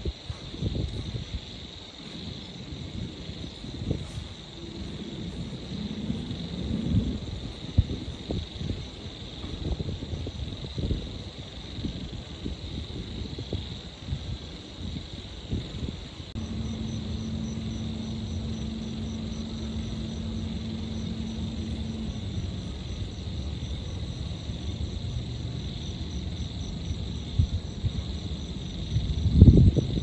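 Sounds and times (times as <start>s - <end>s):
distant traffic rumble: 2.4s - 9.6s, 16.1s - 30.0s
low steady hum: 16.3s - 28.6s
insect high trill: 16.3s - 29.0s
low rumble: 16.3s - 29.9s
insect pulsing high chirp: 16.4s - 30.0s.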